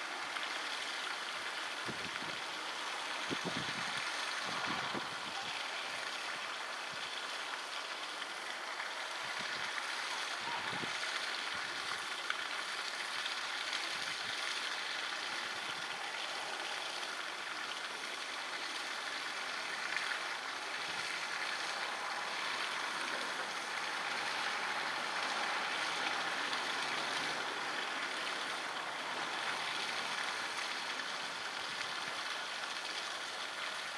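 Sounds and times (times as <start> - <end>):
running water: 0.0 - 33.9.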